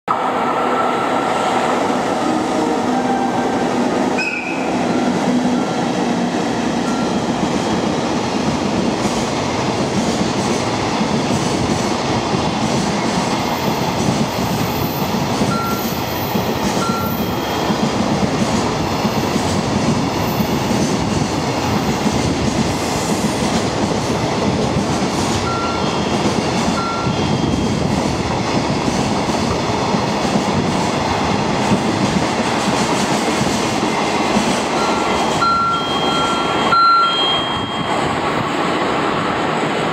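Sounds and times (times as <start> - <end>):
electric locomotive passing: 0.1 - 39.9.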